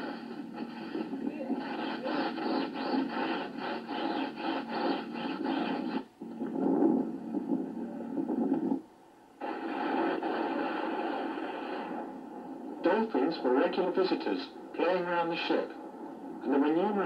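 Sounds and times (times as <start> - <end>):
steady noise: 0.0 - 17.0.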